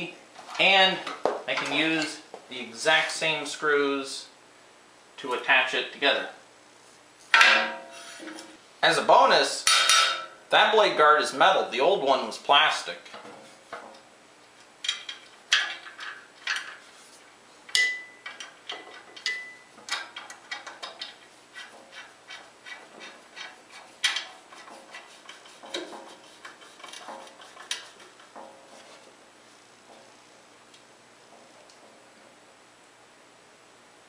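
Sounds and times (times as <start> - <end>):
metal ringing: 7.4 - 8.1, 9.7 - 10.4, 17.7 - 18.4, 19.2 - 19.7.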